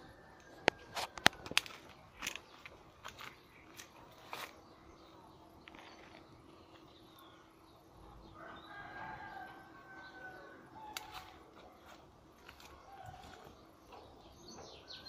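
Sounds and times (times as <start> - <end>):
faint rooster crowing: 0.0 - 1.5, 8.2 - 13.6.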